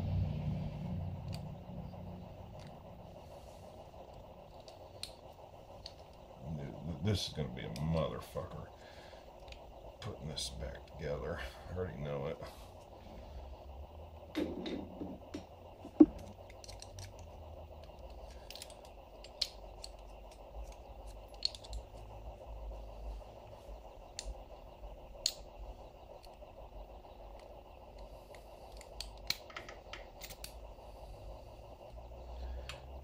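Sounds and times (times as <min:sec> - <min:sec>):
faint steady hum: 0:00.0 - 0:33.0
metallic clicks and scrapes: 0:14.4 - 0:22.1, 0:27.4 - 0:30.6.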